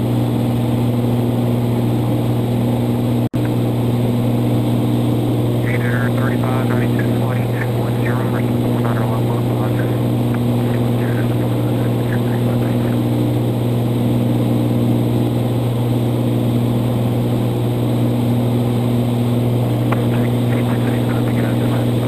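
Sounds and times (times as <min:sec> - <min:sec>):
aircraft engine droning: 0:00.0 - 0:22.0.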